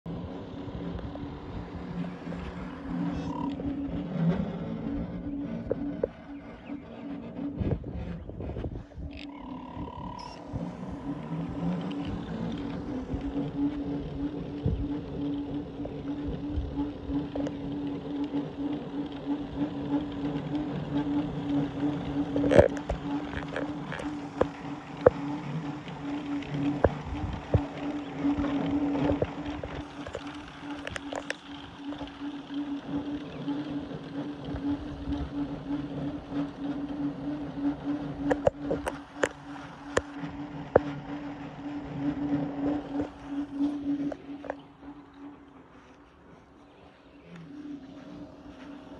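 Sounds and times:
motor and pump hum: 0.0s - 48.9s
noisy background: 0.0s - 48.9s
low rumble: 0.1s - 48.9s
sharp clicks: 20.4s - 32.2s.

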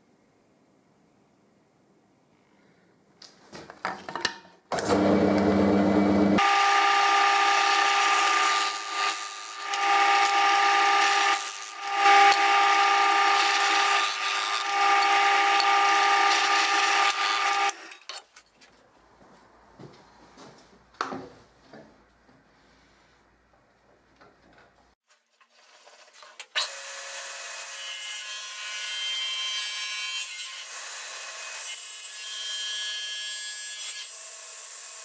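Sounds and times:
drill press humming: 4.8s - 17.8s.

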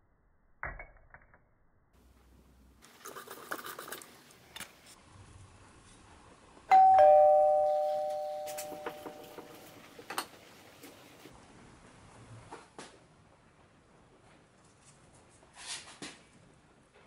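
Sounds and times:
two-note doorbell chime: 6.7s - 9.8s.

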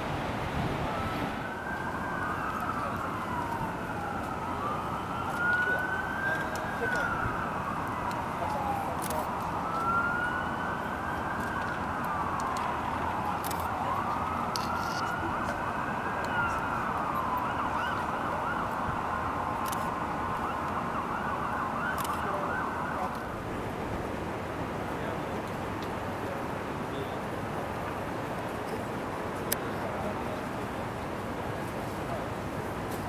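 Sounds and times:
city noise: 0.0s - 33.0s
wind: 0.0s - 33.0s
siren wailing: 0.5s - 23.5s.

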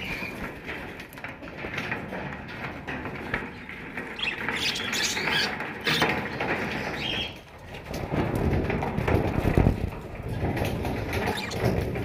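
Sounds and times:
low rustling and rumbling: 0.0s - 12.0s
budgerigars chirping: 4.2s - 6.1s.

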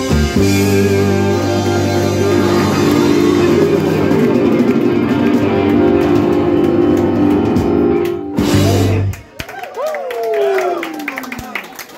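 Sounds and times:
blues-rock band sustained chord: 0.0s - 9.2s.

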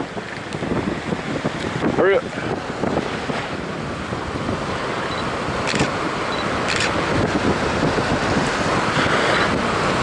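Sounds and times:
surf washing onto beach: 0.0s - 10.0s
wind buffeting microphone: 0.0s - 10.0s.

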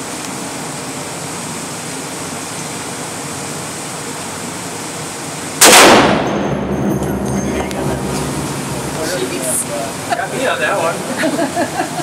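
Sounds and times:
steady rushing noise: 4.2s - 12.0s.

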